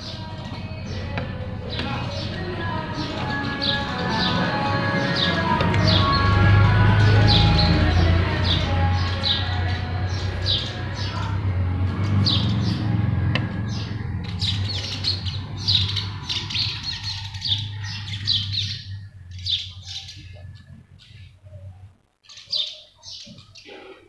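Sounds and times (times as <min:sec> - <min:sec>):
birds squawking: 0:00.0 - 0:24.0.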